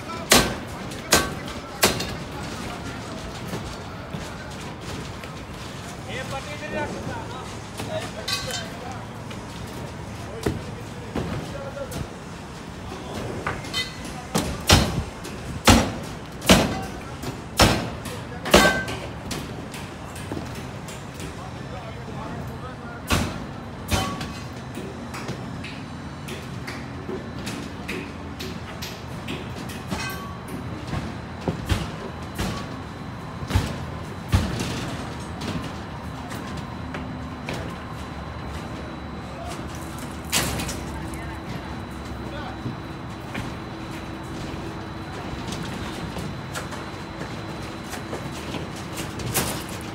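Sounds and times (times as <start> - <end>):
construction site background noise: 0.0 - 49.9.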